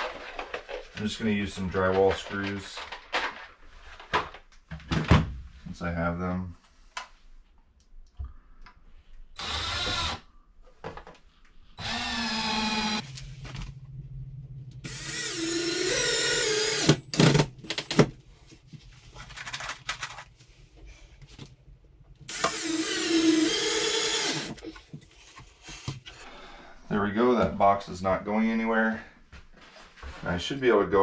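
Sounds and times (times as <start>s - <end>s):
cordless drill motor whine: 9.4s - 10.2s, 11.8s - 13.0s, 14.8s - 17.4s, 22.3s - 24.6s.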